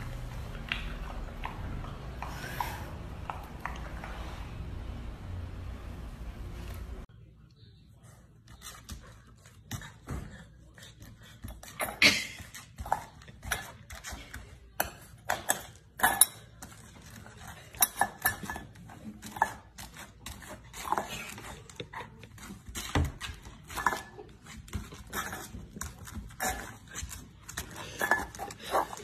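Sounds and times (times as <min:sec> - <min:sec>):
metal bowl clattering on floor: 0:22.9 - 0:29.0.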